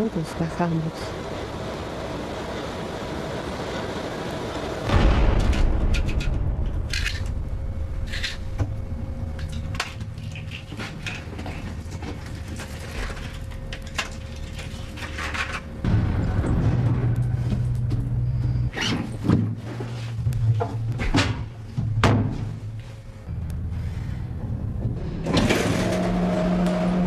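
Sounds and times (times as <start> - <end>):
low rumble: 4.7 - 12.5, 15.8 - 27.0
deep boom: 4.9 - 8.1, 15.8 - 18.7.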